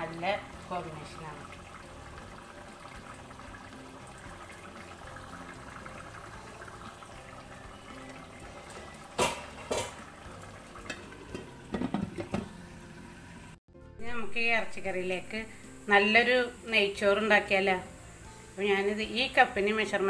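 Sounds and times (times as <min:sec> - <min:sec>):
curry bubbling in pot: 0:00.4 - 0:13.6.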